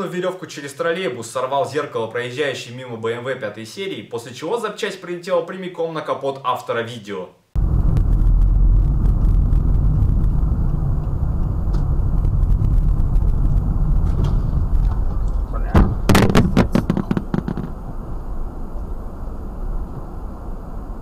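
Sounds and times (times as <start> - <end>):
road and engine rumble: 7.6 - 21.0
sharp bang: 14.0 - 18.4.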